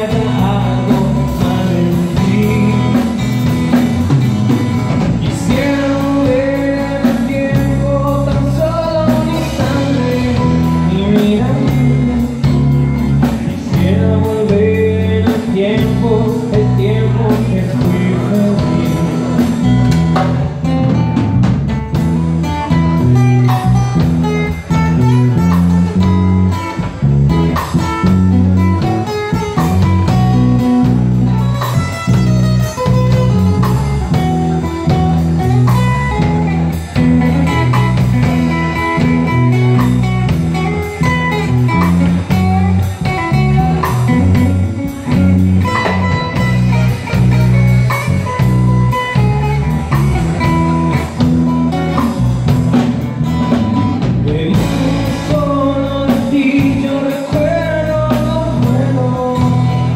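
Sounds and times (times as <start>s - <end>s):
man singing lead vocal: 0.0s - 4.2s, 4.9s - 20.3s, 53.8s - 59.9s
acoustic guitar: 0.0s - 59.9s
drum kit: 0.0s - 59.9s
electric bass: 0.0s - 59.9s.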